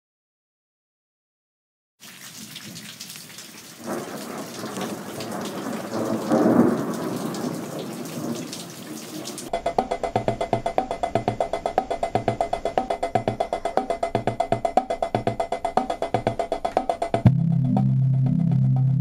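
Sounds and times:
rain falling: 2.0 - 9.5
thunder rumbling: 3.8 - 14.4
music with quick steady beat: 9.5 - 19.0.

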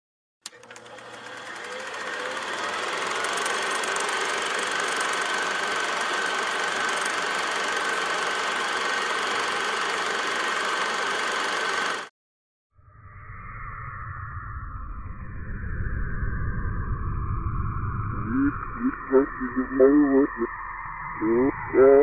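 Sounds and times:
film projector whirring: 0.4 - 12.1.

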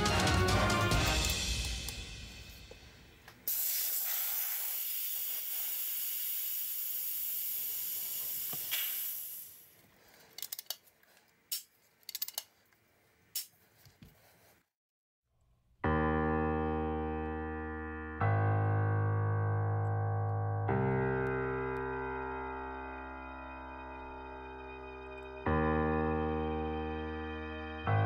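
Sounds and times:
piano music: 0.0 - 2.8, 15.8 - 28.0
air hissing out: 1.7 - 9.8.

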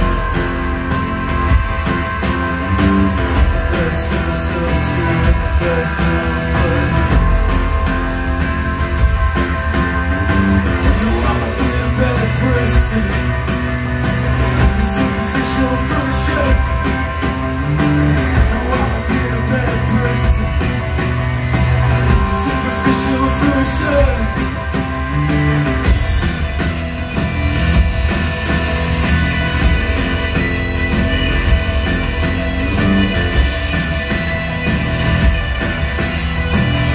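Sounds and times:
bass: 0.0 - 36.9
electric guitar: 0.0 - 36.9
keyboard: 0.0 - 36.9
person singing: 3.6 - 7.9, 10.9 - 13.5, 18.4 - 20.8, 22.2 - 24.6
drum beat: 25.7 - 36.9.

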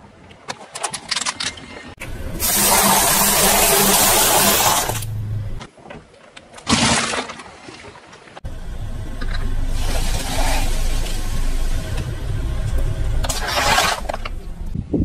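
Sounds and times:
car engine running low: 8.4 - 14.8.

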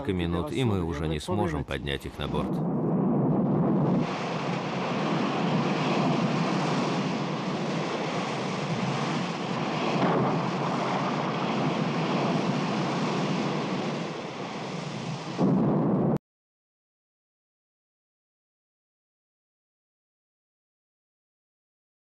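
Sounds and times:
rough sea: 0.0 - 16.2
storm wind: 0.0 - 16.2.

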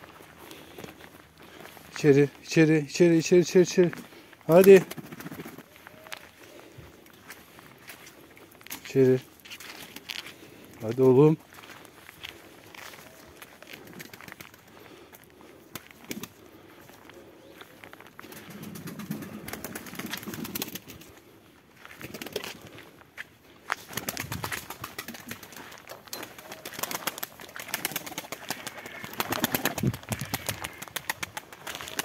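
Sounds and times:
pigeons cooing: 4.9 - 7.2, 12.6 - 15.1, 16.0 - 21.3, 24.0 - 32.0.

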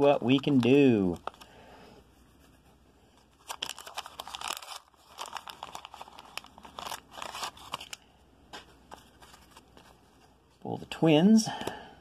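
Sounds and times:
plastic wrapper crinkling and tearing: 0.0 - 1.5, 3.3 - 8.1.

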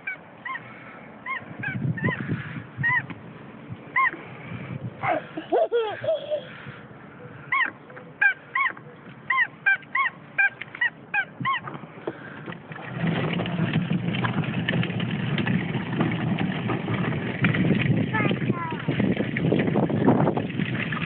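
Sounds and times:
toy car driving over paving: 12.5 - 18.4.

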